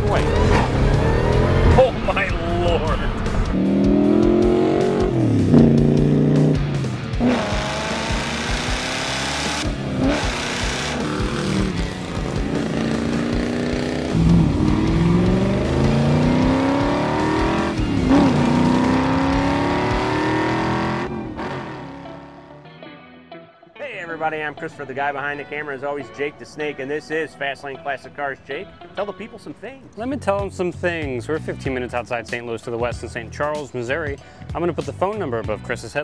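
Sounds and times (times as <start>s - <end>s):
car engines accelerating hard: 0.0s - 22.3s
music: 0.0s - 36.0s.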